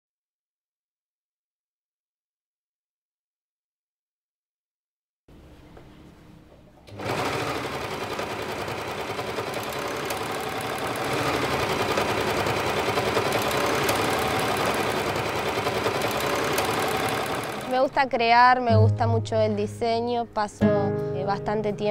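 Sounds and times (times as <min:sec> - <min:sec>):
overlock sewing machine running: 0:06.9 - 0:17.9.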